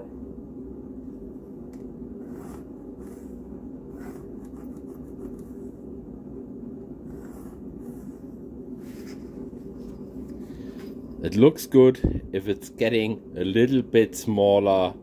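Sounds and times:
steady low hum: 0:00.0 - 0:15.0
pencil scratching on paper: 0:02.2 - 0:05.6, 0:07.0 - 0:08.3.

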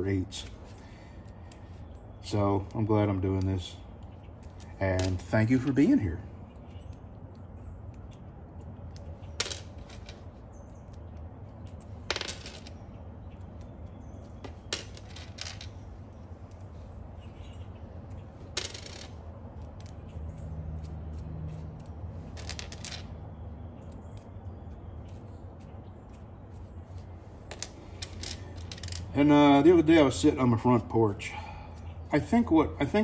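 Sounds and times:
low background hum: 0:00.0 - 0:33.0
metal nuts clinking: 0:27.5 - 0:29.1.

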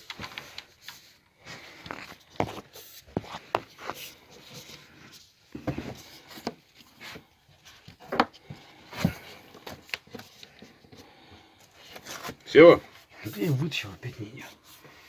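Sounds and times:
plastic pipe knocking and scraping: 0:07.9 - 0:10.3.

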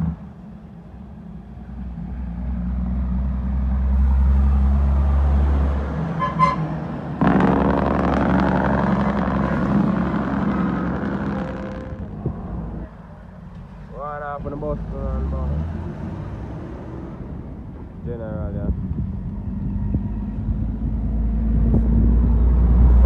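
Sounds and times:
diesel truck engine drone: 0:00.0 - 0:23.0
heavy truck passing: 0:00.0 - 0:23.0.

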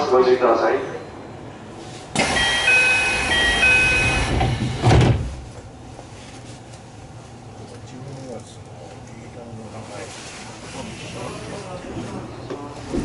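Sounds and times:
train door air hiss: 0:01.9 - 0:05.5
two-note door chime: 0:02.4 - 0:04.2
doors shutting thump: 0:04.0 - 0:05.5.

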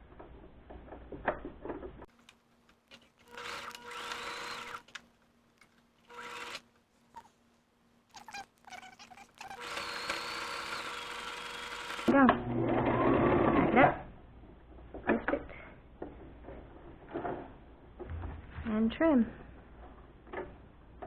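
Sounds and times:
sewing machine stitching: 0:06.1 - 0:06.6, 0:09.5 - 0:13.8.

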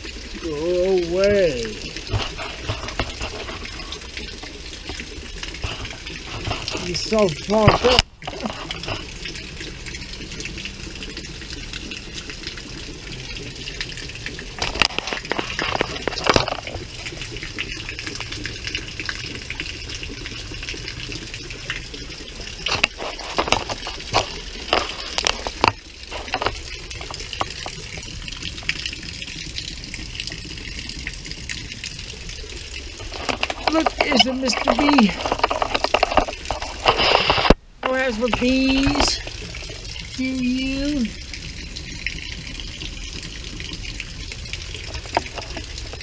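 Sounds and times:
heavy rain splashing on bricks: 0:00.0 - 0:46.0
sharp knocks or splashes: 0:01.2 - 0:09.2, 0:14.5 - 0:17.2, 0:22.6 - 0:28.8, 0:33.0 - 0:41.1.

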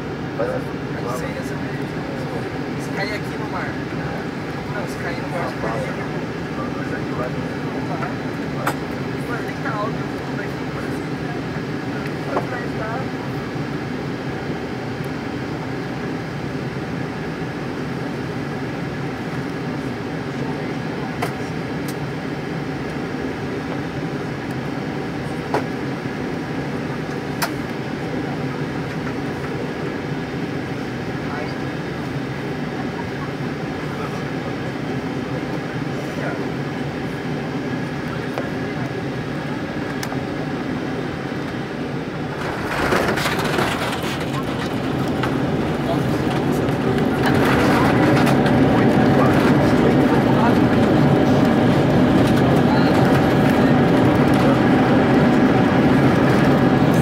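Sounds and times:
jet engines low hum: 0:00.0 - 0:57.0
loud rushing of airliner touchdown: 0:42.2 - 0:56.8.

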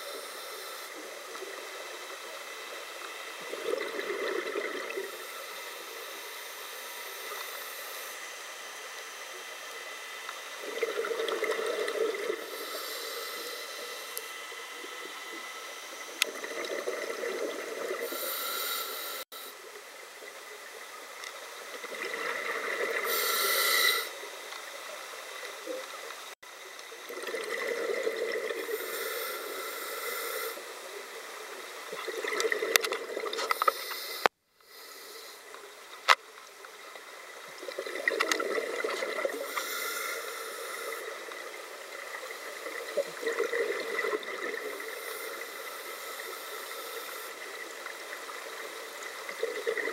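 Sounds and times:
regulator inhale hiss: 0:00.0 - 0:03.3, 0:05.0 - 0:08.7, 0:12.2 - 0:14.9, 0:18.0 - 0:19.7, 0:23.0 - 0:24.3, 0:28.6 - 0:31.6, 0:33.4 - 0:35.8, 0:39.3 - 0:41.6, 0:44.6 - 0:48.1
exhaled bubbles gushing: 0:03.4 - 0:05.2, 0:10.6 - 0:12.6, 0:16.2 - 0:18.1, 0:21.8 - 0:23.1, 0:27.0 - 0:28.8, 0:31.9 - 0:33.4, 0:37.6 - 0:39.4, 0:42.6 - 0:45.0, 0:49.3 - 0:49.9.

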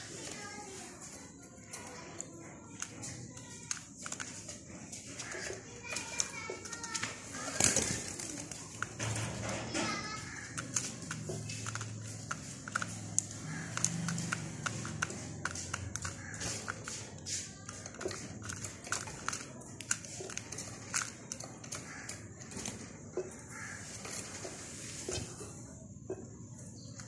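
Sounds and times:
small birds chirping: 0:00.0 - 0:27.0.

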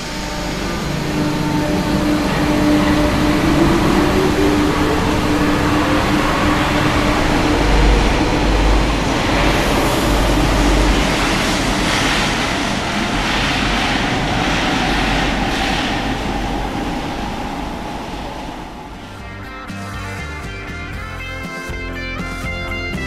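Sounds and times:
train motor whine: 0:00.0 - 0:13.8
metro train rumble: 0:00.0 - 0:23.0.

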